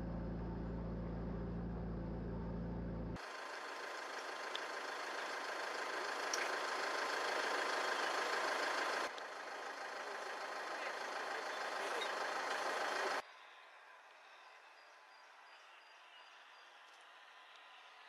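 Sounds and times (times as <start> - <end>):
vehicle engine running: 0.0 - 13.2.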